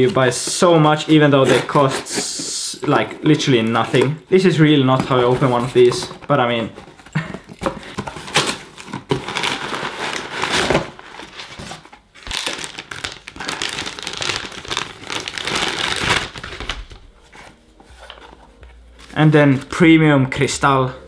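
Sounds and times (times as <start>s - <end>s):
packaging wrap crinkling: 7.1s - 19.7s
cardboard box tearing: 8.0s - 16.7s.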